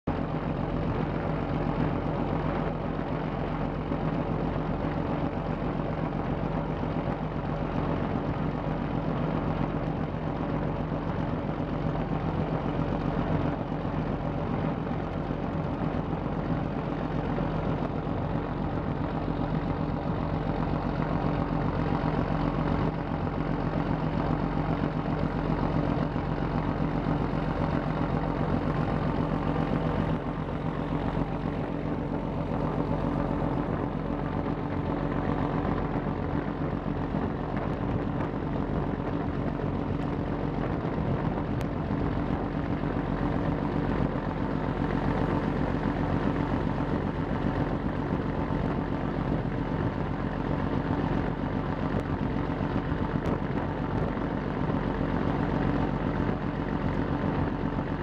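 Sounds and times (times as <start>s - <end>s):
boat diesel engine humming: 0.1s - 58.0s.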